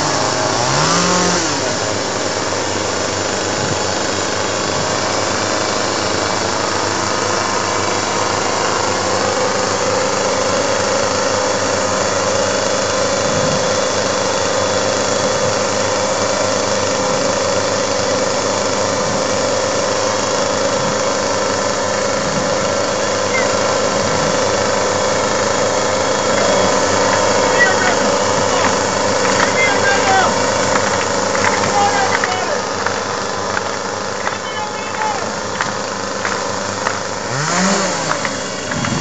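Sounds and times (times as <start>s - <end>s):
chainsaw engines running: 0.0s - 39.0s
steady whine: 0.0s - 39.0s.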